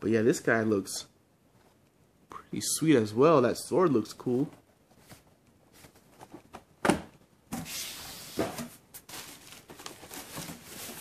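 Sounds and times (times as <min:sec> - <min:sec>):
bubble wrap and cardboard rustling: 0:07.5 - 0:11.0.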